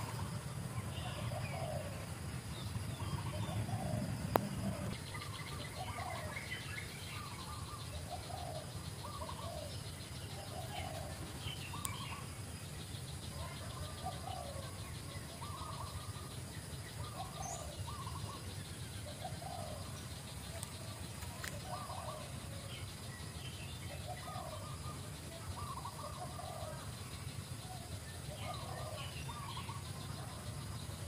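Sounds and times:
steady low rumble: 0:00.0 - 0:05.8.

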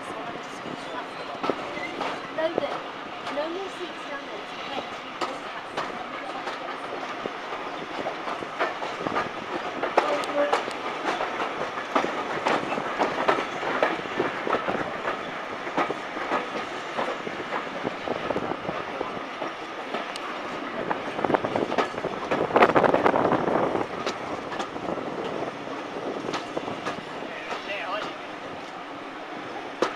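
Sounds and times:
train running rumble: 0:00.0 - 0:29.9
train wheels clacking over rail joints: 0:00.8 - 0:29.9.

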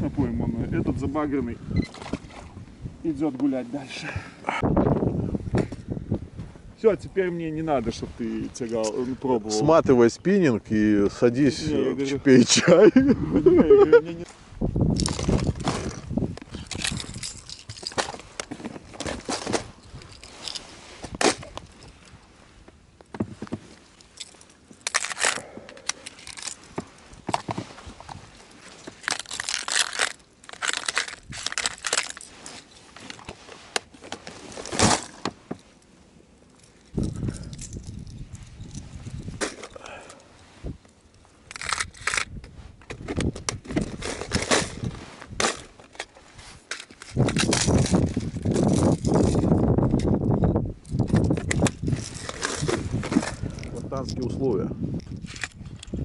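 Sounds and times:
short rustles: 0:23.2 - 0:35.8
plastic clicks and clatter: 0:28.9 - 0:32.2
plastic lures rattling in box: 0:28.9 - 0:32.3
jacket sleeves rustling: 0:31.2 - 0:37.1.

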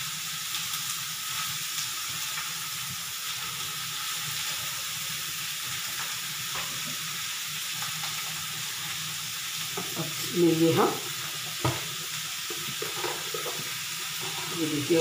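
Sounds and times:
vegetables sizzling in oil: 0:00.0 - 0:15.0
spatula scraping: 0:12.8 - 0:15.0.

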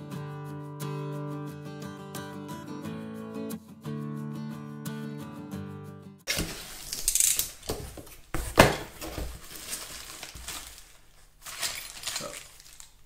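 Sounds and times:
cardboard and plastic rustling: 0:06.3 - 0:13.0.

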